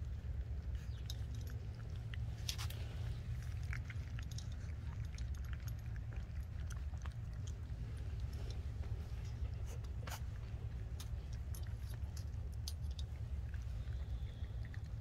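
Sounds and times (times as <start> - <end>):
puppies crunching kibble: 0.0 - 15.0.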